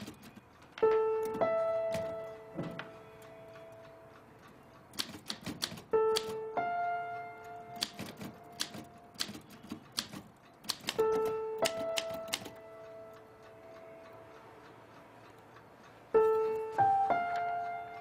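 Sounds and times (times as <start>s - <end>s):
typewriter keys clacking: 0.0s - 3.8s, 4.8s - 6.5s, 7.3s - 12.8s
held music notes: 0.0s - 18.0s.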